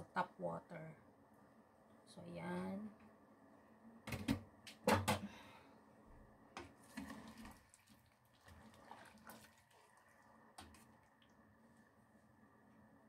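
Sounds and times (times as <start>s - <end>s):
water sloshing: 6.8s - 11.5s.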